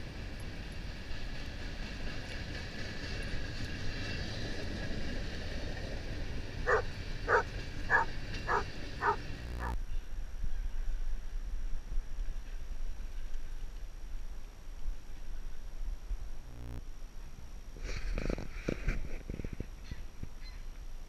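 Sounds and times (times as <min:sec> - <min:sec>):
freight train rumble: 0:00.0 - 0:10.0
dog barking: 0:06.7 - 0:09.3.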